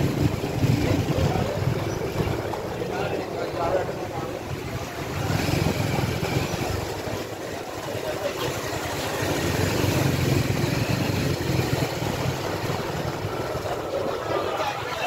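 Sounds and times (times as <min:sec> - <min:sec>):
busy street noise: 0:00.0 - 0:15.0
small engine rumbling: 0:00.0 - 0:15.0.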